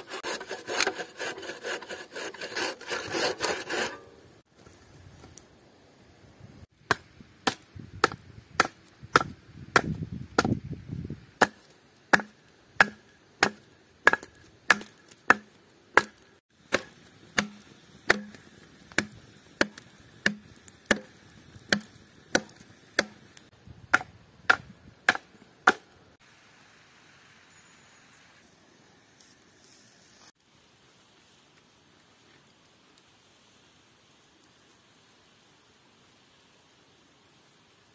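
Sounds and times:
hatchet chopping wood: 6.8 - 10.6, 11.4 - 23.2, 23.9 - 25.9.

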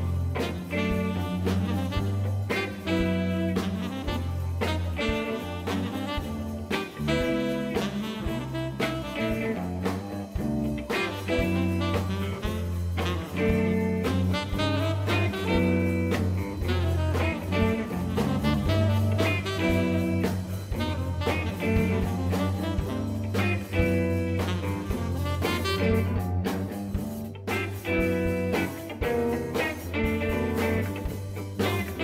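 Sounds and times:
blues jazz music with guitar: 0.0 - 32.0.

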